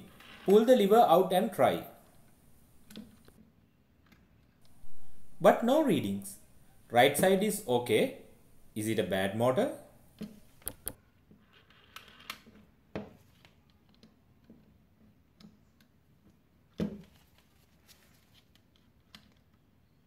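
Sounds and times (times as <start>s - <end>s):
test probes clicking on plastic: 10.2s - 11.0s.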